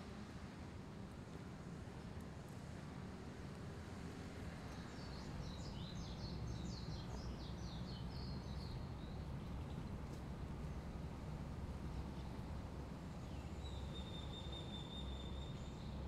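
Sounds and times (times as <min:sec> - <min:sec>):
low outdoor ambient rumble: 0:00.0 - 0:16.0.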